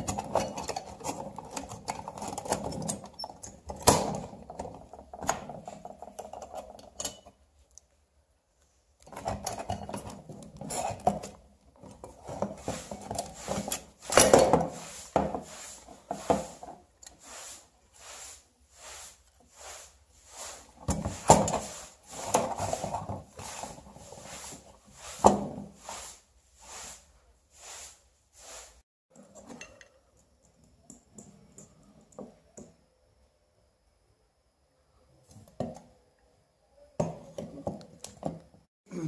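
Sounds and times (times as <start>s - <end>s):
metal lantern rubbing and clinking: 0.0s - 7.4s, 9.1s - 15.3s.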